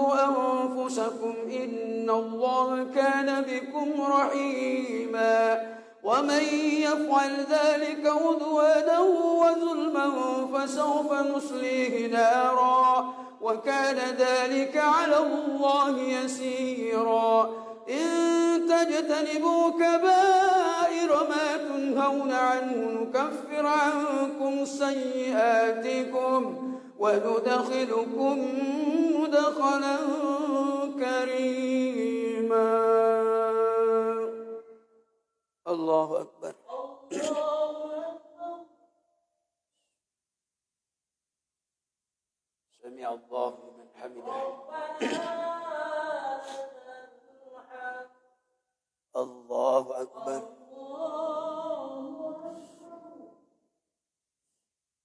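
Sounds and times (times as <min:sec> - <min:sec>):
man chanting melodic recitation: 0:00.0 - 0:34.3, 0:35.7 - 0:36.5, 0:42.8 - 0:45.2.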